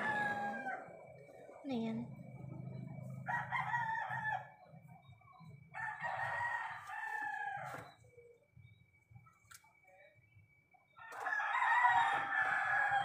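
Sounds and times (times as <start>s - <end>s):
rooster crowing: 0.0s - 1.1s, 3.0s - 4.7s, 5.7s - 8.0s, 10.9s - 13.0s.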